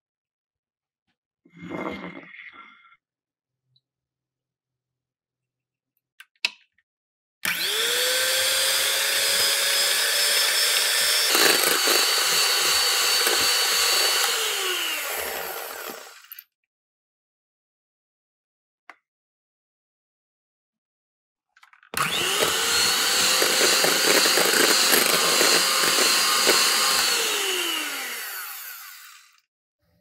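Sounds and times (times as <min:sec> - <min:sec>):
electric hand mixer whining: 0:07.5 - 0:16.3, 0:22.0 - 0:29.5.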